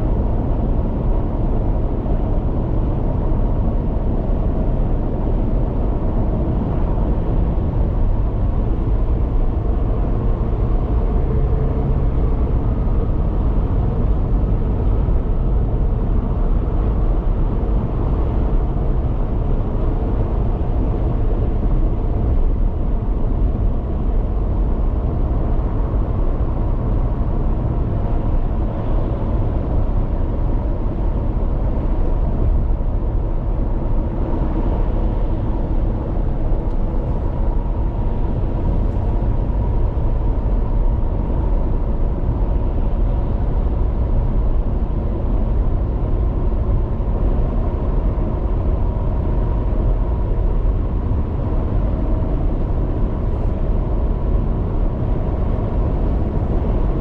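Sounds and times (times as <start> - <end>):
car road noise rumble: 0.0 - 57.0.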